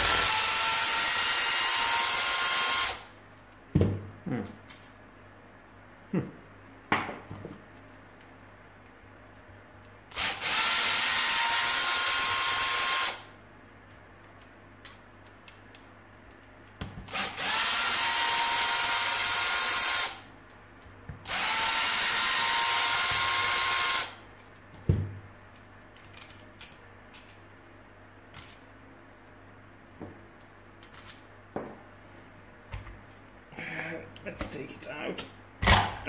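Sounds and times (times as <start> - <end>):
cordless screwdriver whining: 0.0 - 3.0.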